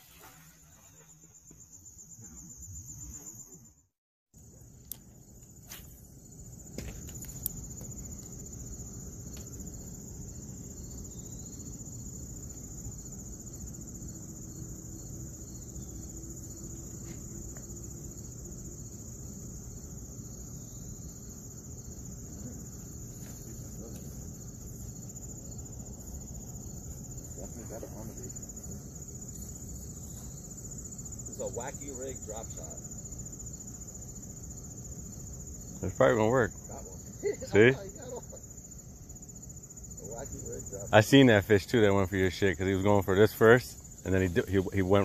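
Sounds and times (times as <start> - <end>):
insects chorus: 0.0 - 45.0.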